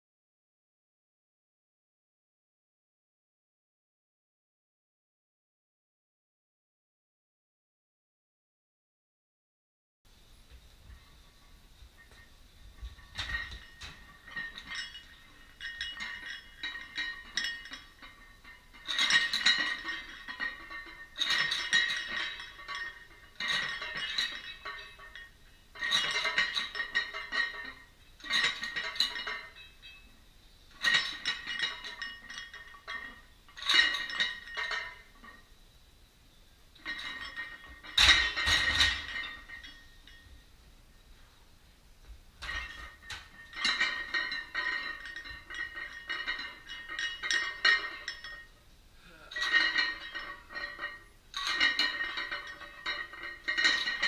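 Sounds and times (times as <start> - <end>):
weight plates clinking on barbell: 10.6 - 35.5, 36.7 - 40.5, 42.4 - 54.0
barbell clanking onto rack: 12.0 - 30.0, 36.8 - 40.2, 49.3 - 54.0.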